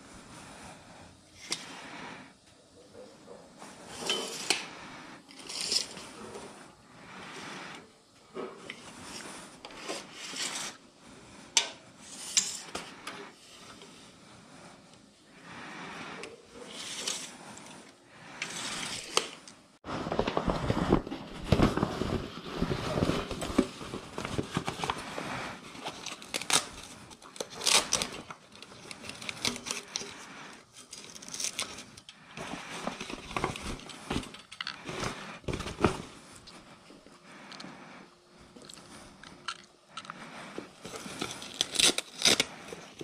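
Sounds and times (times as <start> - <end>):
fabric bag rustling: 19.8 - 25.7.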